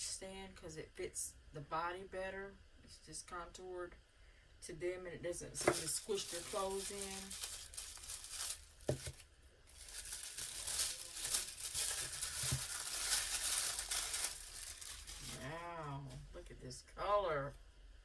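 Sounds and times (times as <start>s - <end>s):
tissue paper rustling: 5.6s - 15.5s.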